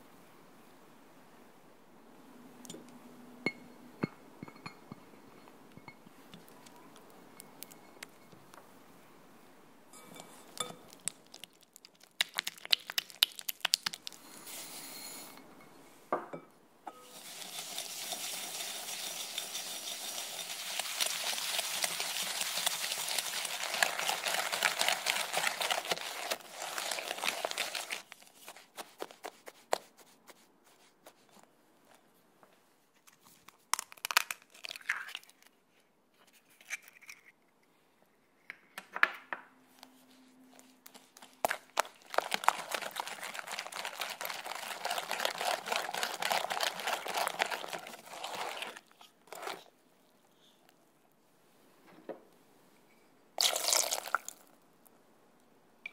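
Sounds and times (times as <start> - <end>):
egg cracking: 10.0 - 14.3, 17.0 - 29.4, 33.4 - 35.5, 40.8 - 49.6
spatula scraping butter in bowl: 17.0 - 24.4, 42.2 - 49.6
whisk rattling against bowl: 17.0 - 28.6, 41.8 - 48.6.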